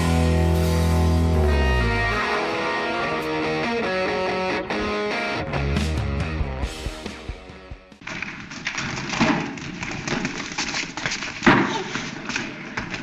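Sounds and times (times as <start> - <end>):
rock music: 0.0 - 8.0.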